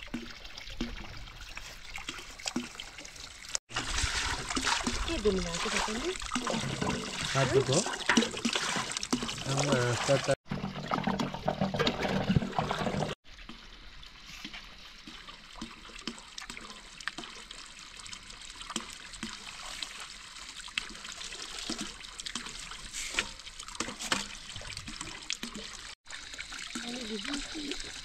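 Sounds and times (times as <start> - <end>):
water splashes and drips: 0.0 - 28.0
water trickling: 0.0 - 28.0.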